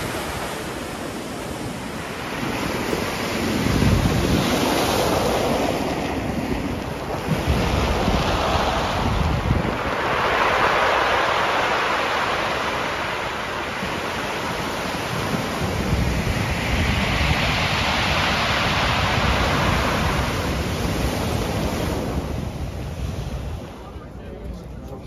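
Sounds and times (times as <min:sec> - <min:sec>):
wind rumbling on microphone: 0:00.0 - 0:25.0
surf breaking on pebbles: 0:02.5 - 0:22.4.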